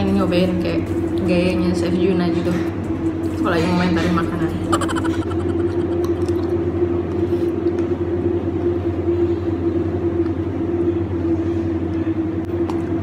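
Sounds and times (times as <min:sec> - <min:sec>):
low machine hum: 0:00.0 - 0:13.0.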